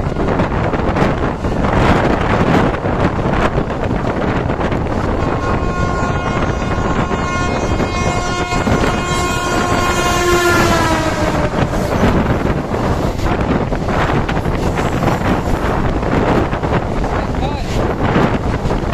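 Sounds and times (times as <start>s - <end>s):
train rumble and wind noise: 0.0s - 18.9s
locomotive horn: 5.0s - 12.7s.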